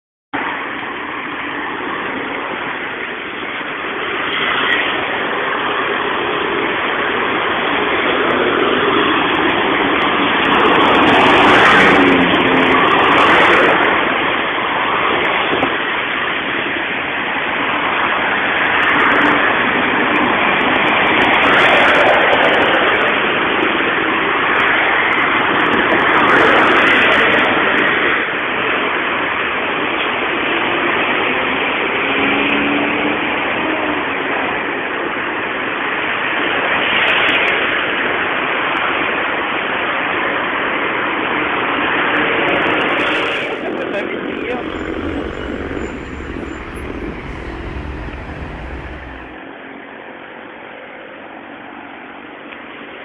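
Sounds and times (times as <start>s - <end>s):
street traffic passing cars: 43.0s - 49.4s.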